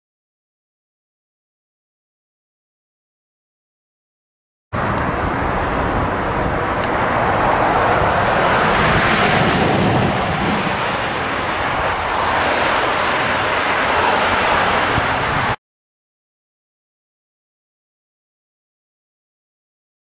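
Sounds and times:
vehicles driving past: 4.8s - 15.6s.

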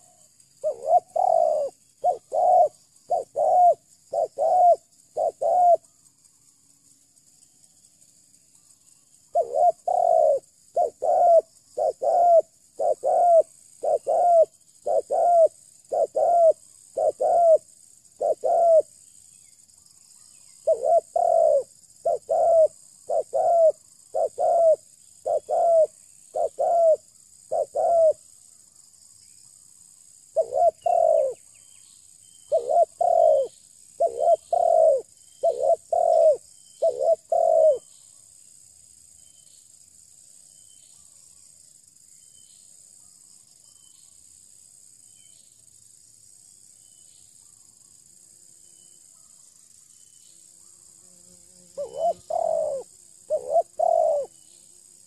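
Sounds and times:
dove cooing: 0.0s - 5.8s, 9.3s - 17.6s, 18.2s - 18.9s, 20.6s - 28.2s, 30.3s - 31.4s, 32.5s - 37.9s, 51.8s - 54.4s
high insect hiss: 0.0s - 55.0s.

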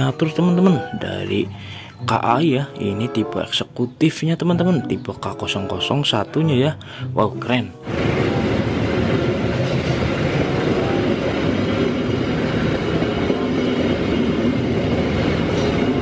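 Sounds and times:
train wheels clattering on rails: 7.9s - 16.0s.

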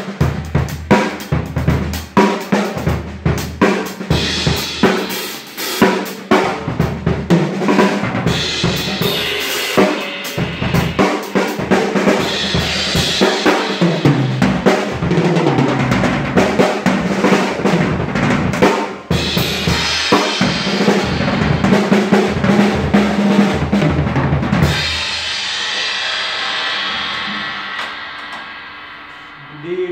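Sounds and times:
drum kit played with sticks: 0.0s - 29.9s
crash cymbals ringing: 25.0s - 29.9s.

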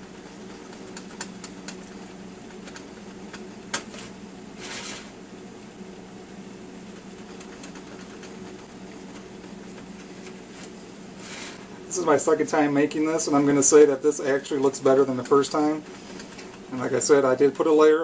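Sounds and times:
steady low hum: 0.0s - 18.0s
knife scraping: 4.6s - 5.1s.

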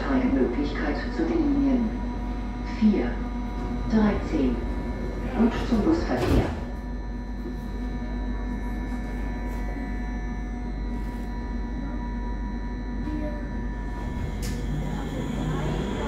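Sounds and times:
electrical hum with high whine: 0.0s - 16.0s.

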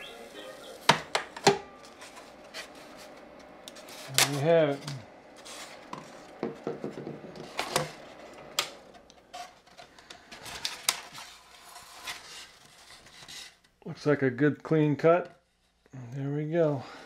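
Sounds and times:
foam rubbing and scraping: 1.8s - 6.4s, 11.0s - 13.6s.

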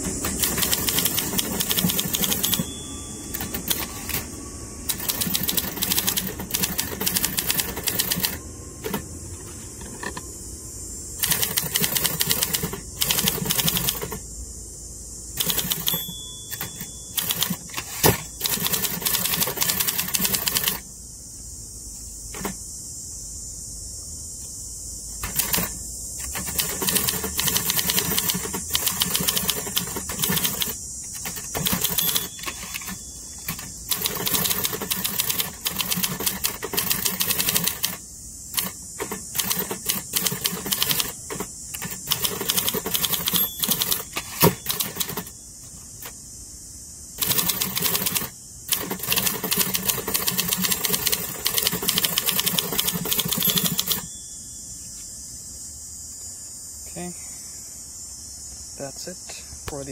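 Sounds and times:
manual typewriter typing: 0.0s - 4.3s, 4.9s - 9.0s, 11.2s - 14.2s, 15.4s - 20.8s, 25.2s - 38.0s, 38.6s - 45.4s, 47.2s - 54.1s.

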